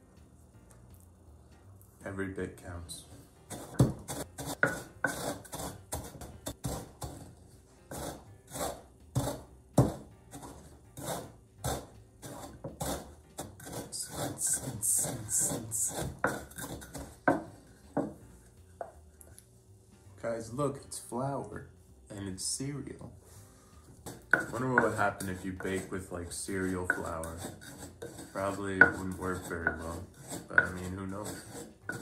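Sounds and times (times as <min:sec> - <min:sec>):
pestle pounding in wooden mortar: 0:03.5 - 0:07.3, 0:07.9 - 0:18.2, 0:24.0 - 0:25.9, 0:26.6 - 0:32.0.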